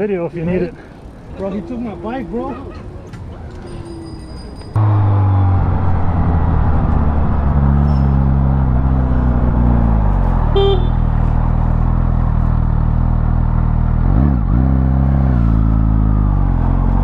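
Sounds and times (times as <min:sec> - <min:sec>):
motorcycle engine running: 0:04.8 - 0:17.0
short horn toot: 0:10.5 - 0:11.2.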